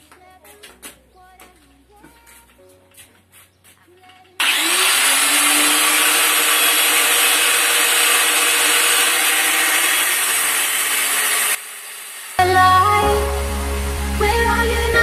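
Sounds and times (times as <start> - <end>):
angle grinder whining: 4.4 - 12.4
grinder cutting iron: 4.4 - 12.4.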